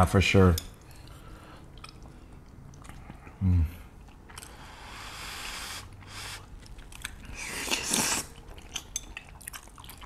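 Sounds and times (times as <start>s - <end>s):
wet chewing with small clicks: 0.6s - 4.6s, 5.9s - 10.0s
noodles being slurped: 7.3s - 8.4s.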